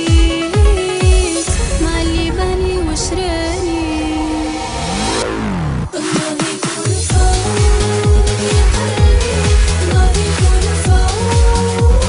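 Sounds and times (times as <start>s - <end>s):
deep kick drum beat: 7.1s - 12.0s.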